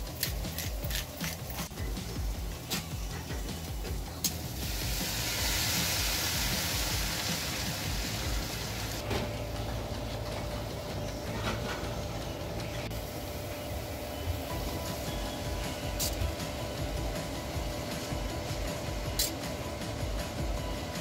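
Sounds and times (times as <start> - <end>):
stir-fry sizzling in a frying pan: 4.2 - 9.0.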